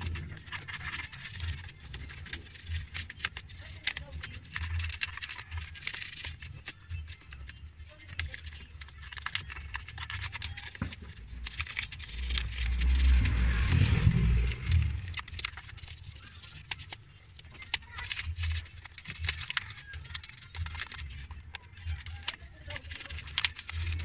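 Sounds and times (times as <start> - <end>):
deep rumble: 11.2 - 16.0.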